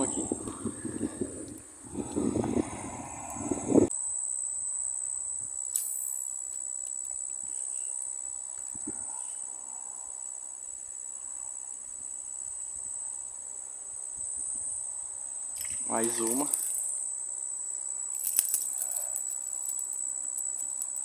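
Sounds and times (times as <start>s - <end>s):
insects chirring: 0.0s - 21.0s
sharp click: 5.7s - 7.2s.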